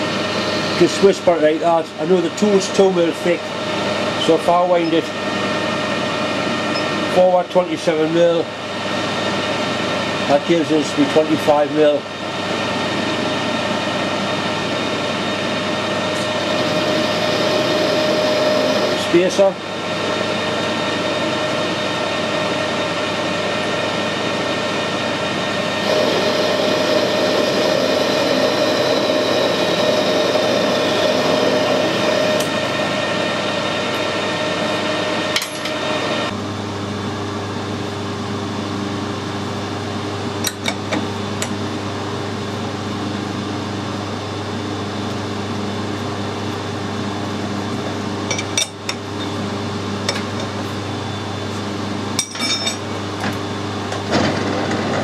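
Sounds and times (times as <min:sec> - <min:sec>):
parting tool cutting steel whine: 0:00.0 - 0:08.5, 0:14.7 - 0:36.4, 0:52.1 - 0:53.3
metal lathe running: 0:00.0 - 0:36.4, 0:38.5 - 0:55.0.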